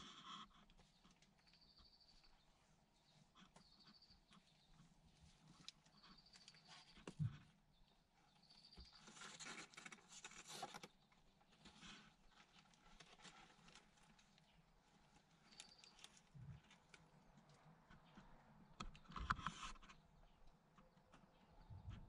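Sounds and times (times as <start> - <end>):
kittens rustling on plastic bags: 8.9 - 17.2.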